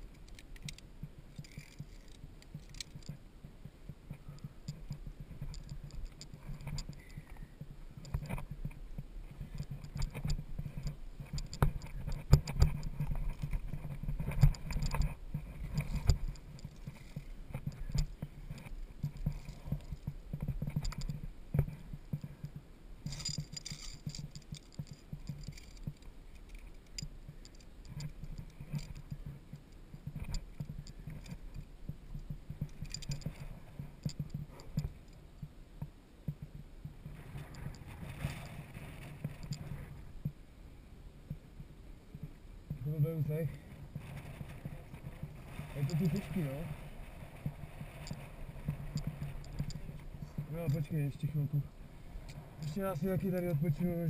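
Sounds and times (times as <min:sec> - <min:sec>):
carabiners clinking on steel cable: 0:00.1 - 0:03.2, 0:04.4 - 0:08.4, 0:09.4 - 0:29.3, 0:29.9 - 0:35.2, 0:44.1 - 0:46.8, 0:47.8 - 0:51.6, 0:52.3 - 0:54.0
metallic clicks and knocks: 0:00.1 - 0:03.2, 0:09.5 - 0:35.0.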